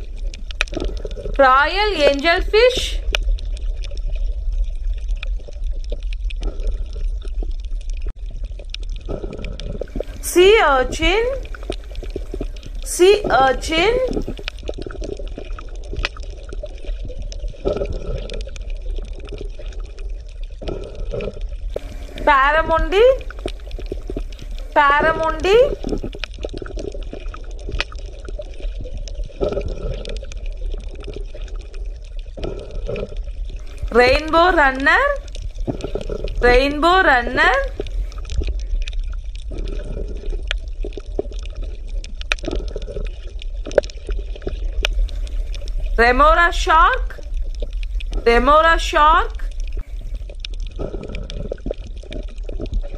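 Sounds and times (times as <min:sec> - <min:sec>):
fine crackling clicks: 0:00.0 - 0:01.4, 0:11.4 - 0:12.9, 0:14.0 - 0:22.3, 0:23.2 - 0:34.2, 0:37.6 - 0:52.9
underwater low rumble: 0:00.0 - 0:52.9
water gurgling: 0:00.0 - 0:52.9.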